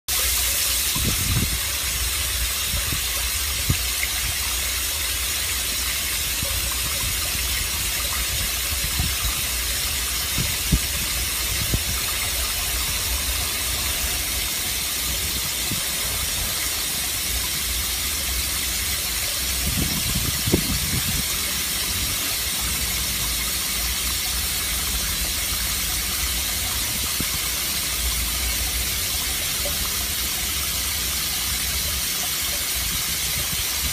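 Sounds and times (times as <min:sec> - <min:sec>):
water spraying into tank: 0:00.1 - 0:33.9.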